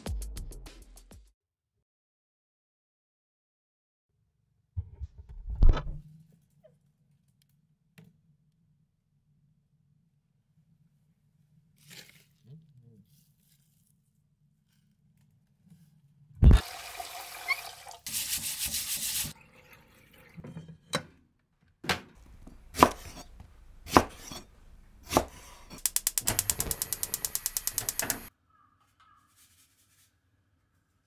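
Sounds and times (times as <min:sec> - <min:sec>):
tap water running into a pot: 0:16.5 - 0:20.6
knife chopping on wooden board: 0:22.2 - 0:25.8
fast sharp clicks: 0:25.8 - 0:28.3.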